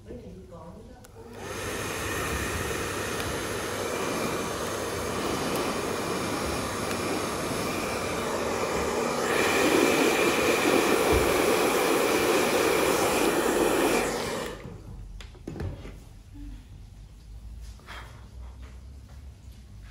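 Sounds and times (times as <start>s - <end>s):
hair dryer blowing air: 1.2s - 14.9s.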